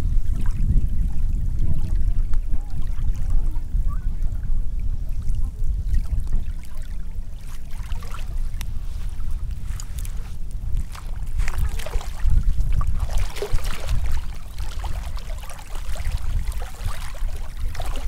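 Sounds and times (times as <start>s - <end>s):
steady low rumble: 0.0s - 18.0s
water washing on shore: 5.2s - 18.0s.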